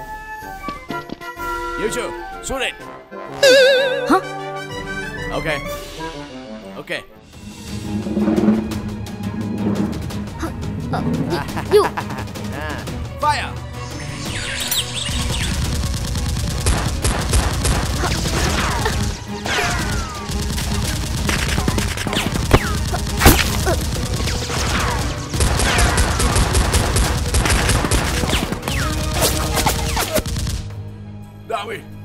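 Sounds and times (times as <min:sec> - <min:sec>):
automatic gunfire: 0:15.4 - 0:19.1, 0:19.7 - 0:30.6.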